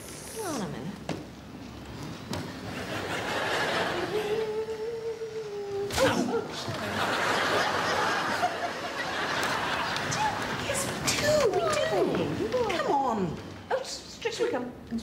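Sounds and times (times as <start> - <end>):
audience laughing: 2.6 - 4.6, 6.0 - 11.0.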